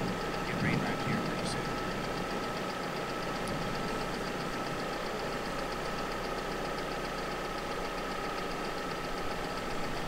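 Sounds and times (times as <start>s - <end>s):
engine idling with ticking: 0.0s - 10.0s.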